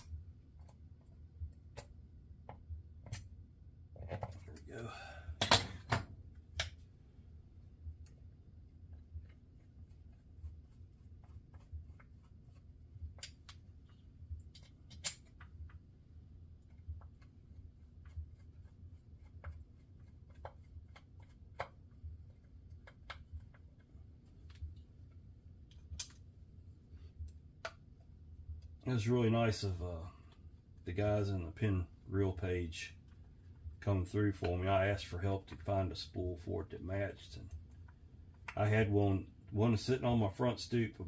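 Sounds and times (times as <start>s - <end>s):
steady low hum: 0.0s - 41.0s
screwdriver clicks and scrapes on metal: 13.1s - 15.7s.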